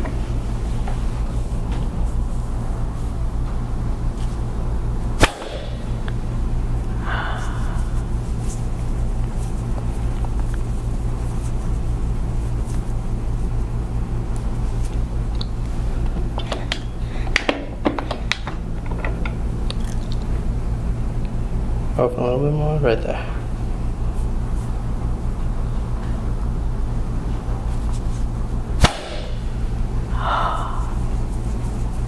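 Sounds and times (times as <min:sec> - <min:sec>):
steady low hum: 0:00.0 - 0:32.0
sharp crack: 0:05.2 - 0:06.0, 0:28.8 - 0:29.5.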